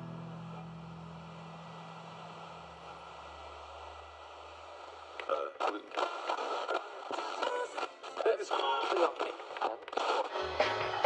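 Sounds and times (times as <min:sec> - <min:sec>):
radio being tuned: 0:03.7 - 0:11.0
voices through small radio speaker: 0:05.1 - 0:10.3.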